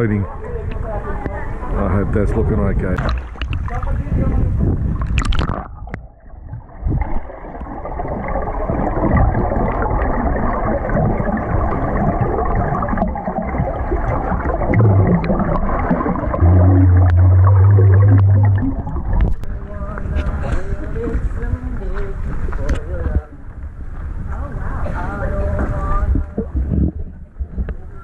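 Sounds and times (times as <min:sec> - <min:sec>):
underwater rush of water: 0:02.9 - 0:20.1
bubbling: 0:05.0 - 0:19.6, 0:26.1 - 0:27.8
breathing out bubbles: 0:07.8 - 0:19.4
loud low hum: 0:14.7 - 0:19.6.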